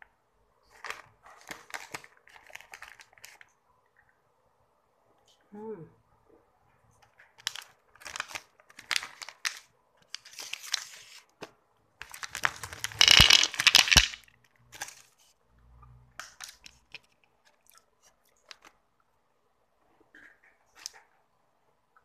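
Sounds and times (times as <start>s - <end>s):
plastic wrappers crinkling: 0.7s - 3.5s, 7.2s - 11.4s, 12.0s - 15.2s, 16.2s - 17.7s, 18.3s - 18.8s.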